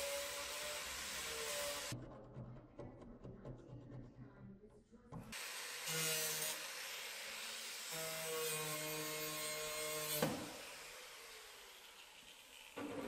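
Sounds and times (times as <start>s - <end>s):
cut-off disc cutting metal: 5.4s - 13.0s.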